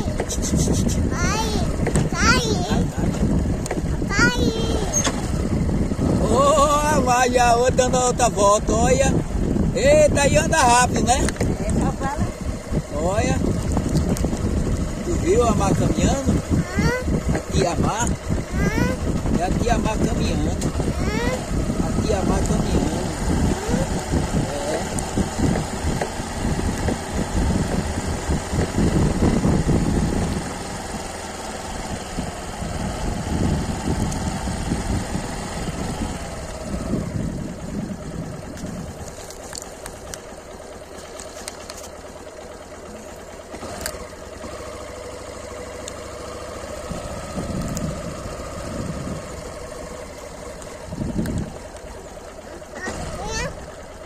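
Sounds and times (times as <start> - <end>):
wind rumbling on microphone: 0.0 - 42.0, 46.7 - 53.6
motorcycle engine running: 0.0 - 54.0.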